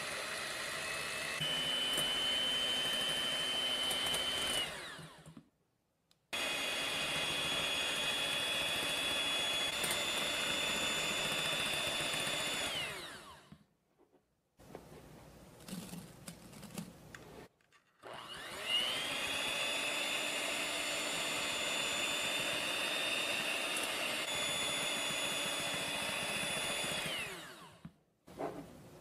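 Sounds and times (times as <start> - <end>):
electric hand mixer whining: 0.0 - 5.4, 6.4 - 13.6, 17.9 - 27.9.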